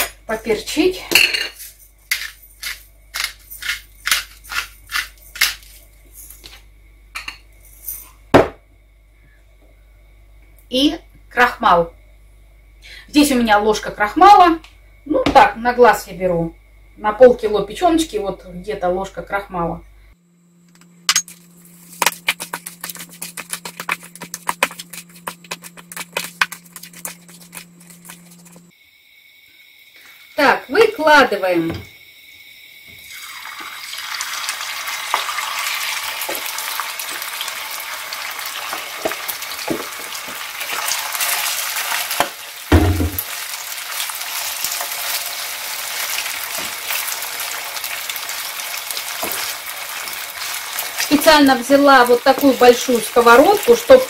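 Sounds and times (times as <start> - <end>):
pepper mill grinding: 1.6 - 6.4, 21.1 - 28.7
steady low hum: 15.8 - 28.8
hands squelching wet food: 21.9 - 28.7
mill knocking on counter: 42.7 - 43.3.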